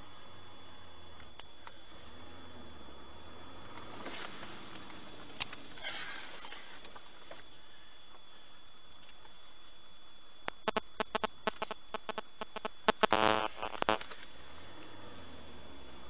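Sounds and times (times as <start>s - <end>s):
low hum: 0.0s - 16.0s
vehicle cabin hiss: 1.6s - 8.0s, 13.1s - 16.0s
sharp clicks and rattles: 10.4s - 14.2s.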